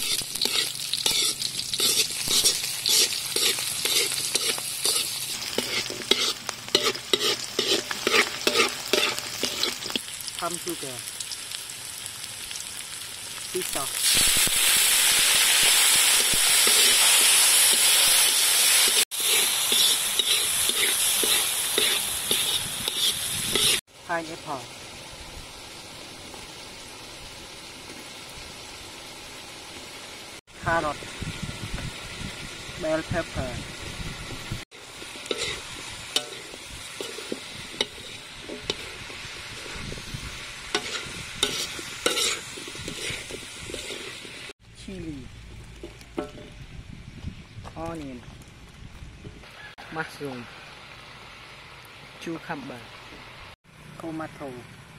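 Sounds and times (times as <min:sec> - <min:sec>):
spatula scraping a wok: 0:00.0 - 0:10.1, 0:14.2 - 0:23.8, 0:34.8 - 0:44.5
sizzling in hot oil: 0:00.0 - 0:47.0, 0:48.9 - 0:54.8.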